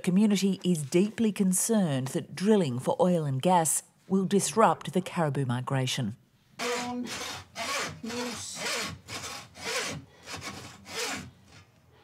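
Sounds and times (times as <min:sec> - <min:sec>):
hand saw rasping through meat: 0:06.6 - 0:11.7.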